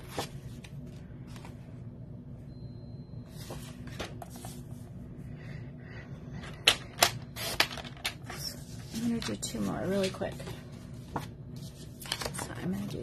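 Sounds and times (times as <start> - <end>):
cardstock rustling: 7.4 - 13.0.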